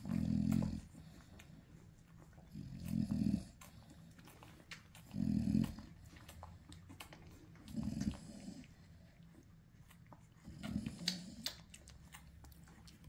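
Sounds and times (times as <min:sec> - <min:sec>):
dog low rumbling grunts: 0:00.0 - 0:01.2, 0:02.4 - 0:04.2, 0:05.0 - 0:06.3, 0:07.2 - 0:08.8.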